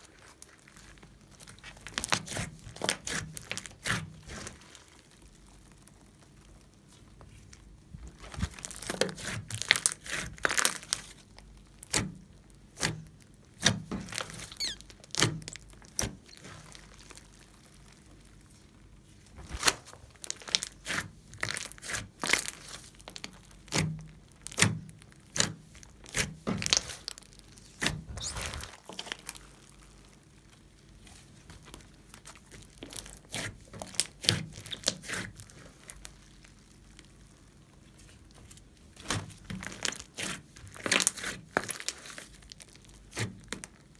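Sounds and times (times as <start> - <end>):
slime clicking and popping: 21.4 - 29.5.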